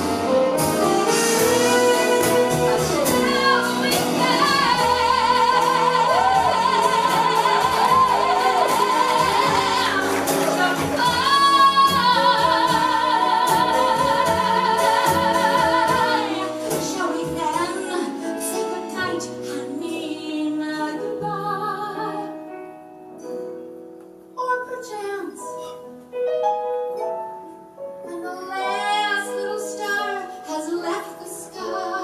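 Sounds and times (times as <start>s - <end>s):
small jazz band playing: 0.0s - 24.4s
woman singing with vibrato: 1.1s - 22.4s, 28.0s - 32.0s.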